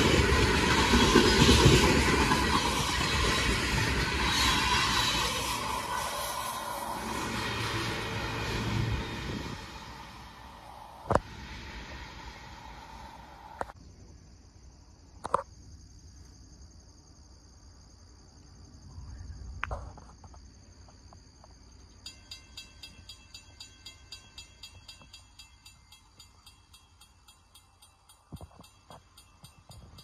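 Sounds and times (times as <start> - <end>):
freight train rumble: 0.0 - 13.8, 21.8 - 30.0
insects trilling: 0.0 - 30.0
regular ringing pulse: 22.0 - 30.0.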